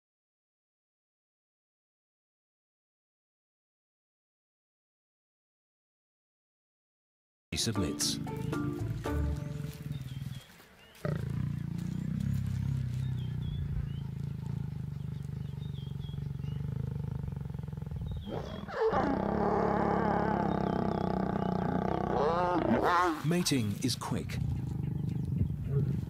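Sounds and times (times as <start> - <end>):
lions growling: 8.9 - 26.0
lion snarling: 9.2 - 26.0.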